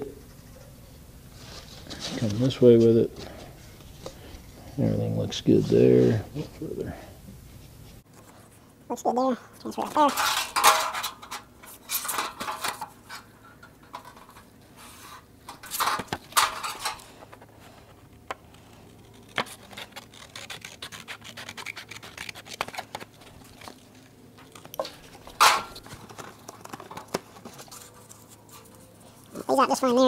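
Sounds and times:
paper rustling and scraping: 0.2 - 4.4, 13.9 - 29.4.

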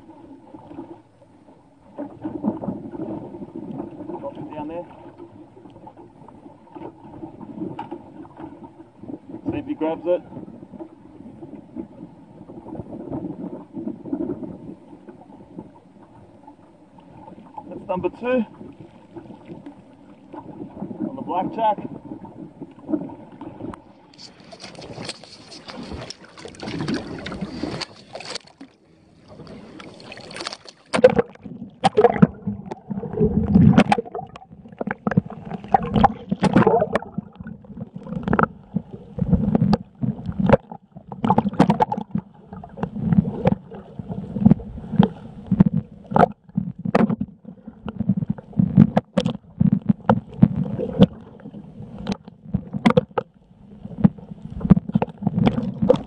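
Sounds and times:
water sloshing and gurgling: 0.0 - 56.0
water slapping against camera: 17.5 - 56.0.

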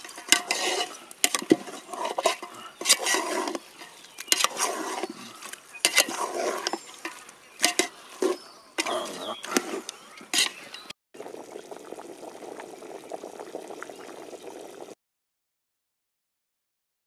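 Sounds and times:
ladle scraping metal pot: 0.0 - 10.9
wood fire crackling: 11.2 - 14.9.

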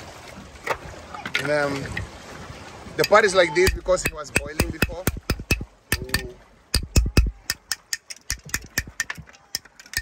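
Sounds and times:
knife chopping hard shell: 3.0 - 9.1.

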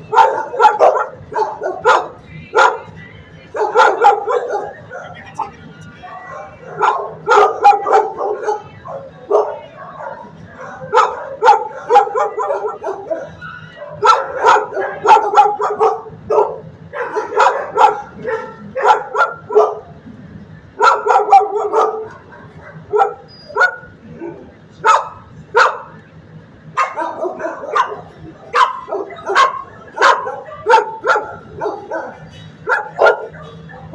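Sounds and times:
dogs barking: 0.0 - 20.0, 20.7 - 26.0, 26.7 - 33.9.

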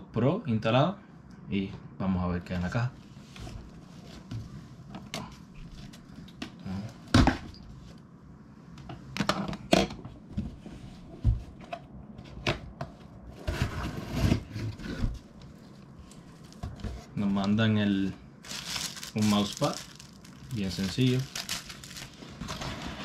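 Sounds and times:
cardboard box scraping and rustling: 13.3 - 15.3, 21.1 - 23.0.

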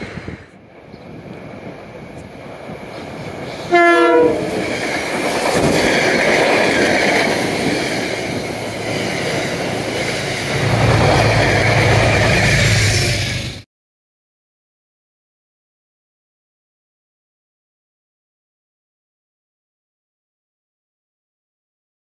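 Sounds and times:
diesel locomotive drone: 0.0 - 13.6
train wheels on rails: 0.0 - 13.6
train horn blast: 3.7 - 4.6.

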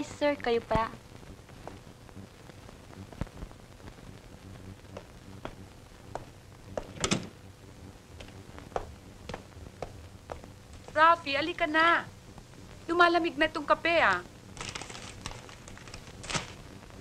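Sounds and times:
faint low hum: 0.0 - 17.0
footsteps on marble floor: 8.2 - 11.0.

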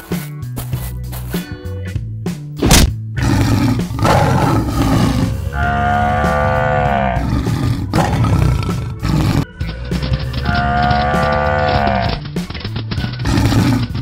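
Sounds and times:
background music: 0.0 - 14.0
cow mooing: 3.2 - 9.5, 10.4 - 12.2
lion roaring: 3.2 - 9.5, 10.5 - 12.2, 13.2 - 14.0.

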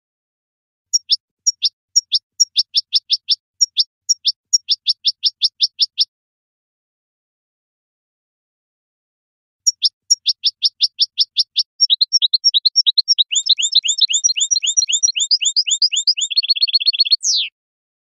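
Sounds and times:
finch singing: 0.9 - 6.1, 9.7 - 17.6.

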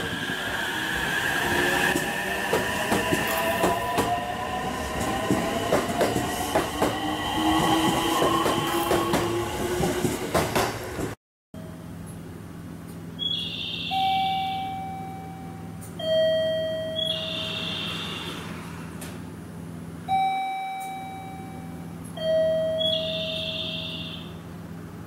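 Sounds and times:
two-tone chime: 13.9 - 17.6, 20.1 - 24.2.

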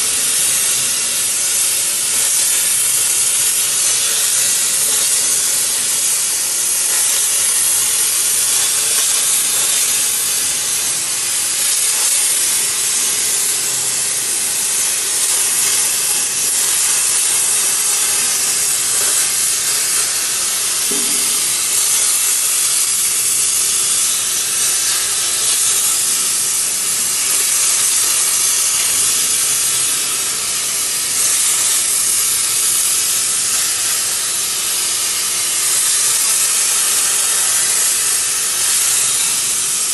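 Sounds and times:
plasma torch hissing: 0.0 - 39.9.

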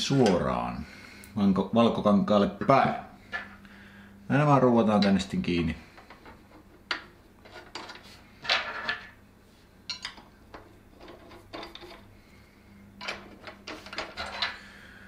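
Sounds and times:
metal parts clattering: 7.4 - 9.2, 11.0 - 12.1, 13.0 - 14.6.

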